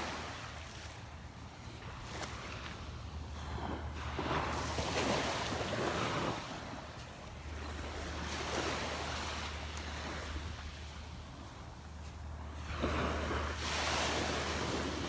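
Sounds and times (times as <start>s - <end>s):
small waves breaking on sand: 0.0s - 15.0s
wind rumble on microphone: 0.0s - 15.0s.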